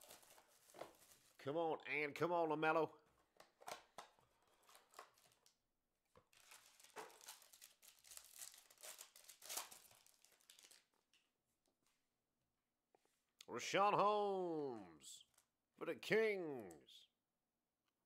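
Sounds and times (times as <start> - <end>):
foil pack crinkling and tearing: 0.0 - 1.4, 4.5 - 5.6, 6.3 - 11.0.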